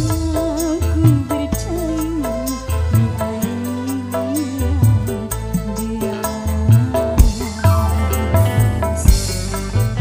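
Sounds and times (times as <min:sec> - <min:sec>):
drums and bass: 0:00.0 - 0:10.0
woman singing into a microphone: 0:00.0 - 0:10.0
fast ticking beat: 0:05.4 - 0:10.0.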